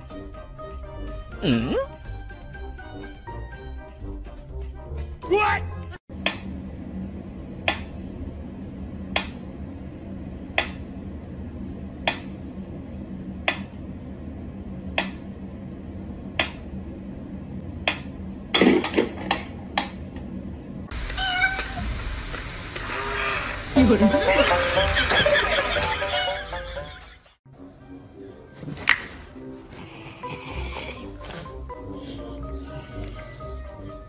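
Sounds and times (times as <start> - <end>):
cat meowing: 21.0 - 21.9.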